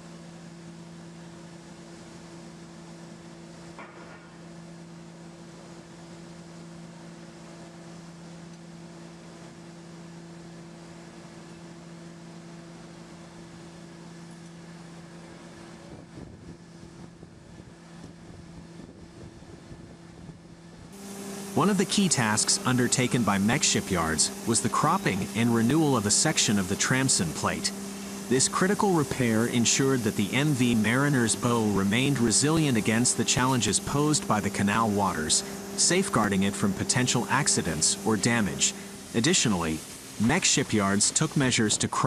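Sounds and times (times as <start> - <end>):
machinery hum: 0.0 - 42.0.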